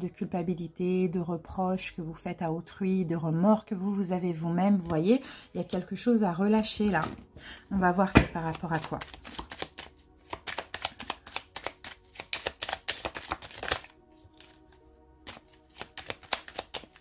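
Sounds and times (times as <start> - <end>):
cards being shuffled: 8.2 - 17.0.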